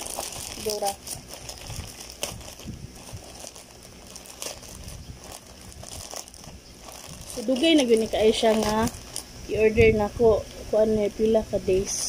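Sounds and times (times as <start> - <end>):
plastic packaging crinkling: 0.0 - 9.3.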